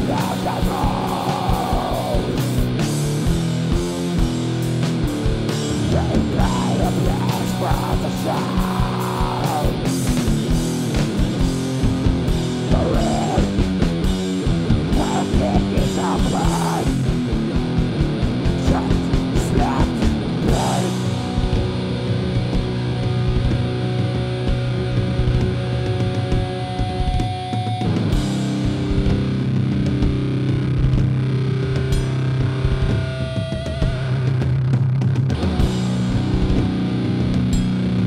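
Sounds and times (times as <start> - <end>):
drum beat: 0.0 - 23.8
electric guitars: 0.0 - 38.0.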